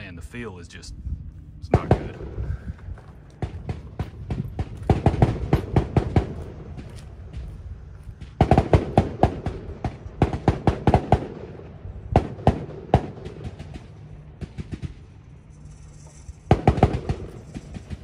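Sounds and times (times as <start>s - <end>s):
rapid gunshots: 1.7s - 2.4s, 3.4s - 6.6s, 8.2s - 15.3s, 16.5s - 18.0s.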